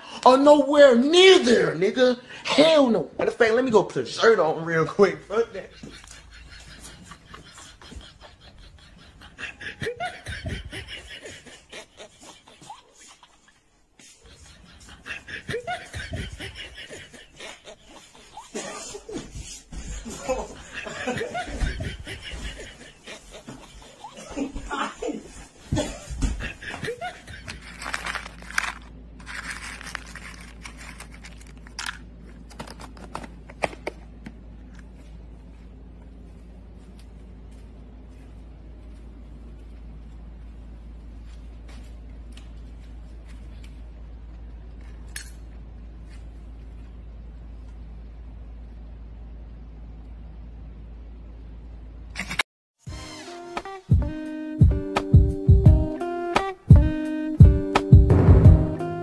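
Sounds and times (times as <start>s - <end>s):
people laughing: 5.4s - 27.9s
steady low hum: 14.1s - 53.0s
plastic cup scraping and rustling: 27.4s - 33.1s.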